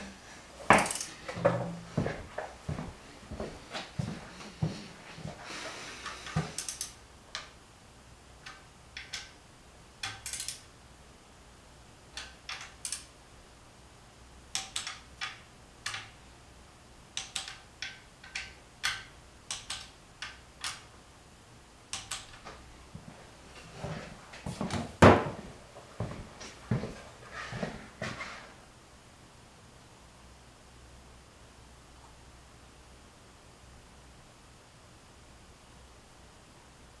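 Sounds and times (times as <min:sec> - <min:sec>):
ratchet and wrench clicking: 0:06.2 - 0:07.0, 0:10.0 - 0:10.7.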